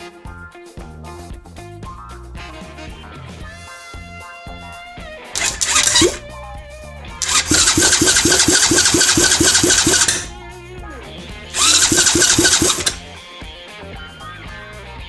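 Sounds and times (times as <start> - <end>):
motorcycle engine cranking: 5.4 - 6.2, 7.2 - 10.4, 11.6 - 13.0.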